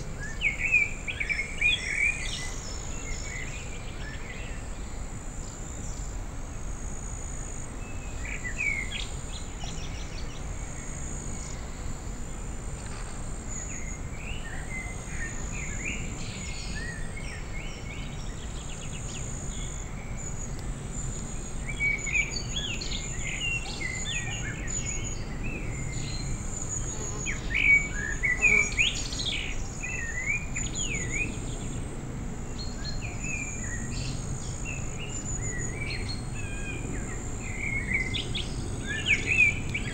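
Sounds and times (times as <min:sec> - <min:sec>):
low background hum: 0:00.0 - 0:39.9
small birds chirping and singing: 0:13.4 - 0:31.8, 0:32.5 - 0:39.9.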